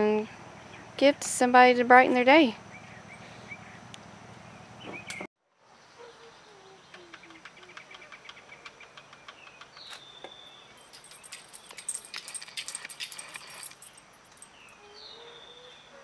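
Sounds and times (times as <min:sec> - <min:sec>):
bird chirps: 0:02.7 - 0:11.8, 0:14.5 - 0:16.0.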